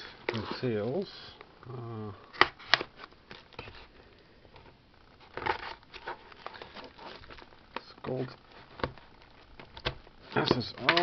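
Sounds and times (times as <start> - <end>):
person humming: 1.6 - 2.2
packaging rustling: 2.3 - 11.0
packaging clicks: 6.4 - 11.0.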